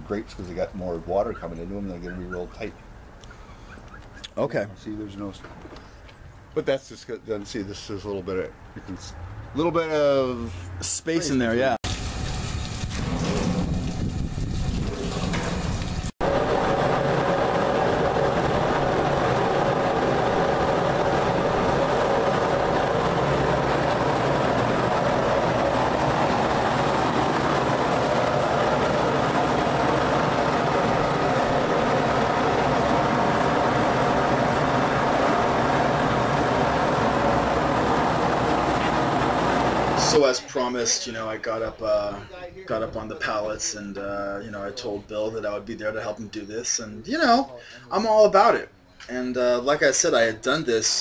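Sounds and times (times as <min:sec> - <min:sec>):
machine mechanical hum: 0:12.8 - 0:40.3.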